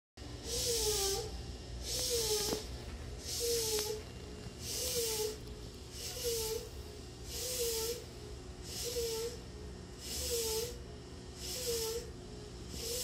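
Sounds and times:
steady low hum: 0:00.2 - 0:13.0.

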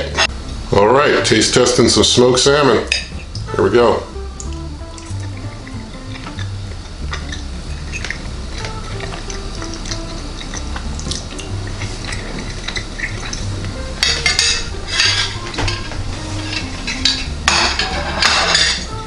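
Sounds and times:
fork scraping a ceramic plate: 0:06.2 - 0:18.9.

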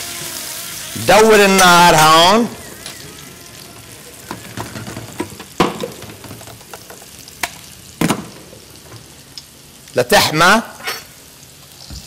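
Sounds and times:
gas hob hissing: 0:00.0 - 0:12.0
cookware knocking and clinking: 0:04.3 - 0:07.0.

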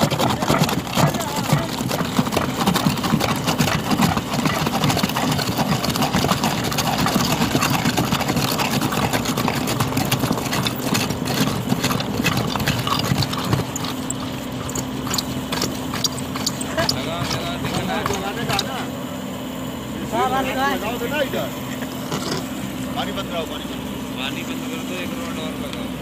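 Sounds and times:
hammer drill rattling into soil: 0:00.0 - 0:18.8.

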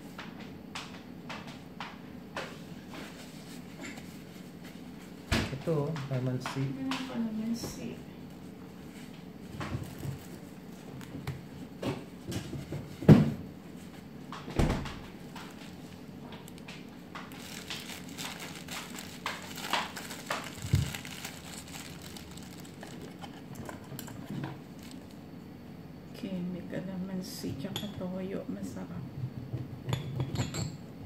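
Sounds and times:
knocks and clicks of kitchen items: 0:00.1 - 0:03.1, 0:11.0 - 0:13.4, 0:29.2 - 0:30.8.

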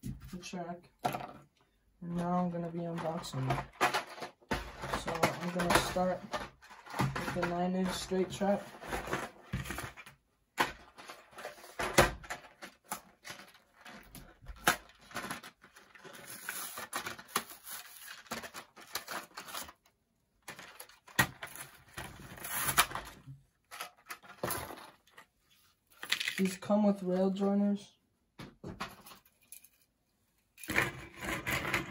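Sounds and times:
plastic blister packs crinkling: 0:12.2 - 0:23.1.

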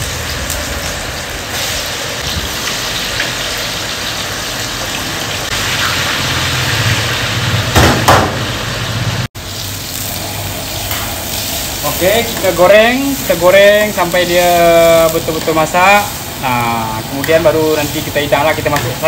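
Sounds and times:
chicken deep-frying in hot oil: 0:00.0 - 0:19.0
gas burner rumble: 0:05.3 - 0:19.0
loud knocks: 0:07.7 - 0:08.5.

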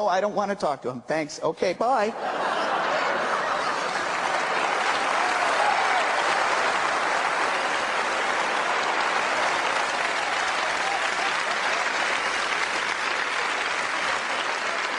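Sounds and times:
audience applauding: 0:02.4 - 0:14.9.

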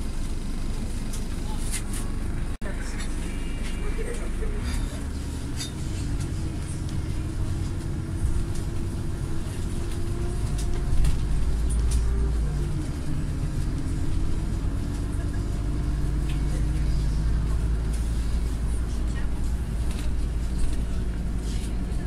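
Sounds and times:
bus engine rumbling: 0:00.0 - 0:22.0
drivetrain whine: 0:00.0 - 0:22.0.

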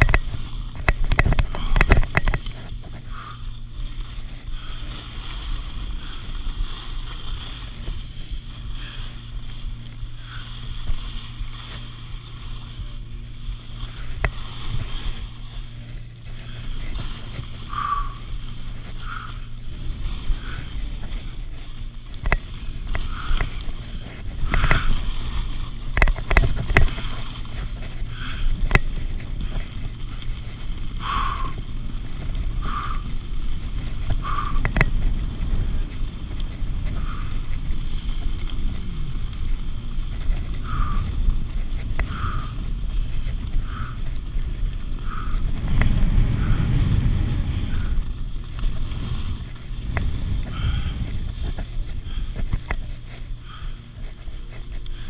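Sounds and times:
skis running on snow: 0:00.0 - 0:55.0
wind on microphone: 0:00.0 - 0:55.0
ski scrapes: 0:02.4 - 0:25.9, 0:45.1 - 0:51.9.

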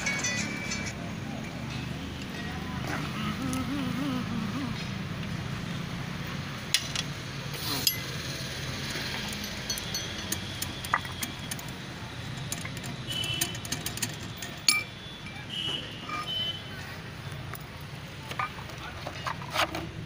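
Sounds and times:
metal clinks and taps: 0:09.1 - 0:11.7, 0:12.4 - 0:15.4.

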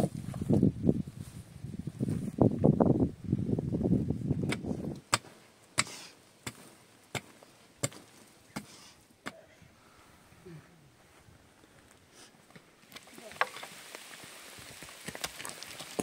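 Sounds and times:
pickaxe striking stony ground: 0:04.5 - 0:09.4.

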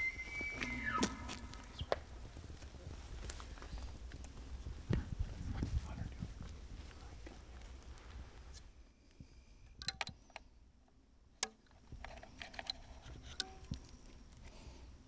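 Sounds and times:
bow clicks and ticks: 0:07.2 - 0:14.7.

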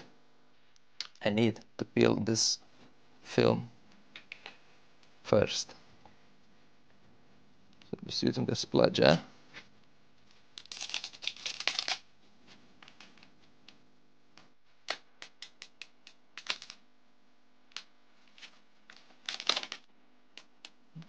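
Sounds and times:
plastic film crackling: 0:10.6 - 0:12.0, 0:18.4 - 0:19.9.

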